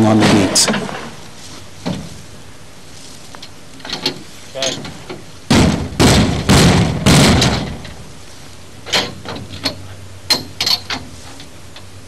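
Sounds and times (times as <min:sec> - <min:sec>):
metal panels rattling and banging: 0:03.8 - 0:08.1.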